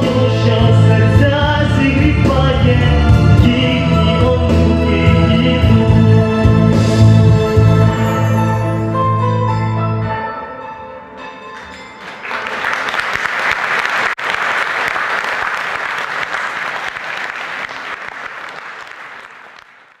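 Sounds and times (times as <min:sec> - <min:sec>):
music: 0:00.0 - 0:13.0
audience clapping: 0:11.6 - 0:20.0.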